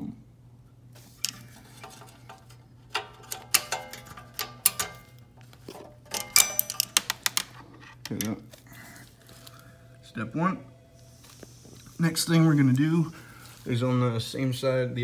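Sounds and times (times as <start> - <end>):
metal cable clicking and clinking: 1.8 - 8.4.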